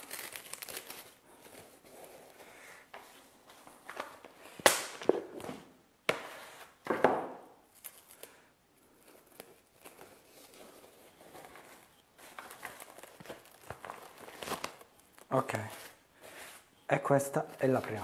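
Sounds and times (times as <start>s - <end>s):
cling film crinkling and tearing: 0.0s - 1.4s, 9.2s - 16.0s
plastic film rustling: 0.0s - 2.6s, 7.6s - 18.0s.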